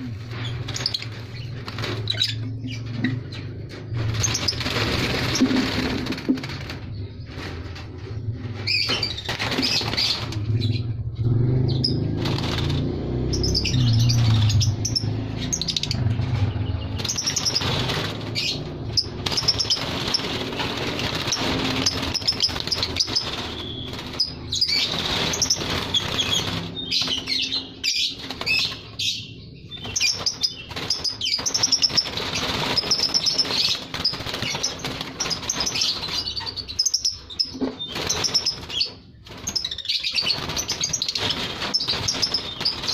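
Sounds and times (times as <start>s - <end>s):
birds chirping: 0.0s - 42.9s
low rumble: 2.3s - 27.2s
wings flapping against wire mesh: 3.7s - 10.6s, 11.8s - 14.9s, 16.2s - 37.0s, 37.6s - 42.9s.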